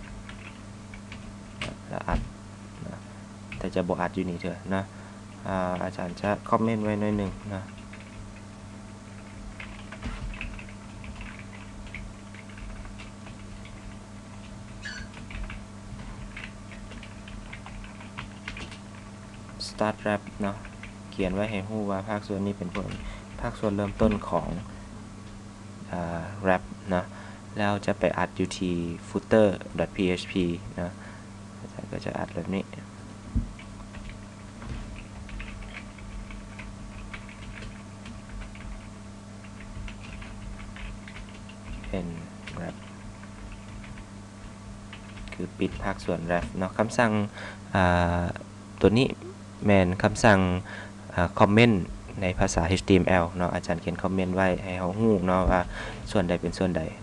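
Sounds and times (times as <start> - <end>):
low electrical hum: 0.0 - 57.0
keyboard typing: 0.2 - 1.8, 7.5 - 8.4, 9.2 - 19.1, 34.9 - 46.6
short squeak: 14.8 - 15.1.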